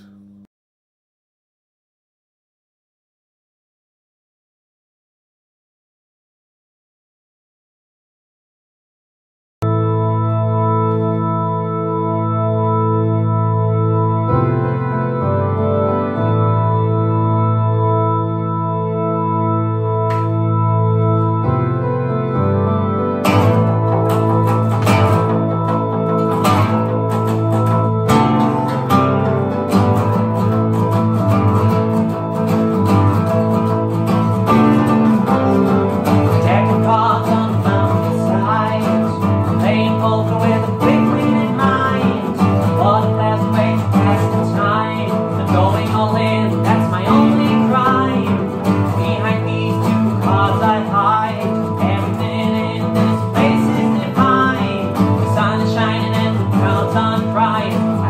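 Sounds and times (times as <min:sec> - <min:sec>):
keyboard: 0:09.6 - 0:58.0
strummed acoustic guitars: 0:19.9 - 0:58.0.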